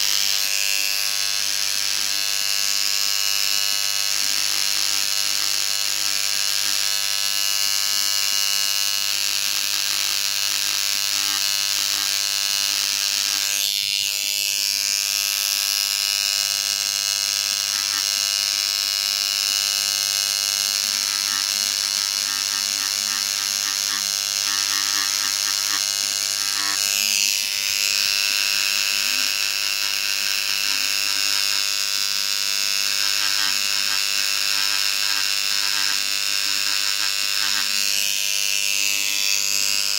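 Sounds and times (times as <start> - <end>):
engraving pen buzzing on stone: 0.0 - 39.9.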